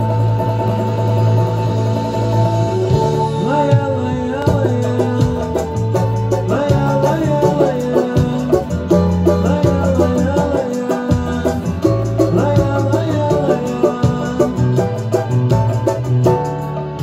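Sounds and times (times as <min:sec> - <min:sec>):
banjo strummed with a pick: 0:00.0 - 0:17.0
bass line: 0:00.0 - 0:17.0
recorded samba song: 0:00.0 - 0:17.0
person singing: 0:02.9 - 0:15.5.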